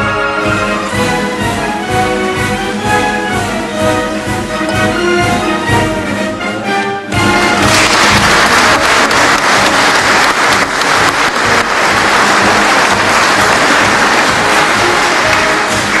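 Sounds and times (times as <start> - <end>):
congregation applauding: 7.5 - 16.0.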